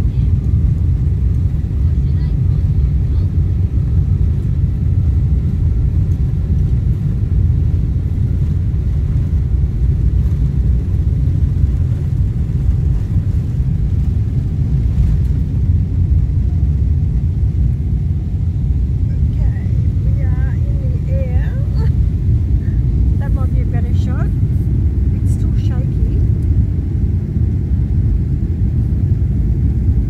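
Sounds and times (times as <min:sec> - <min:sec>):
jet engines at takeoff thrust: 0:00.0 - 0:30.0
wheels rumbling on runway: 0:00.0 - 0:30.0.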